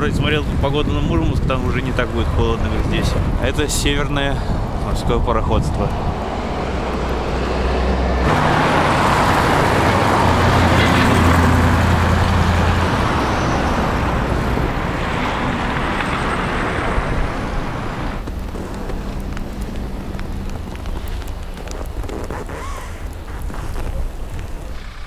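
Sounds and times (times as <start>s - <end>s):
vehicle driving past: 6.0s - 21.6s.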